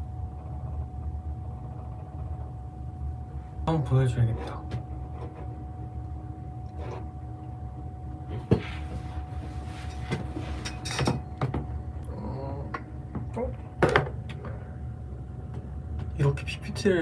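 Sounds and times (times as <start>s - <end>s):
faint high hum: 0.0s - 17.0s.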